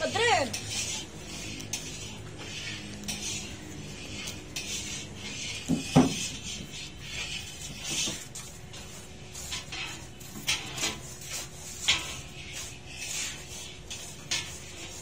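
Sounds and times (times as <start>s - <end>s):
knock: 5.9s - 6.2s.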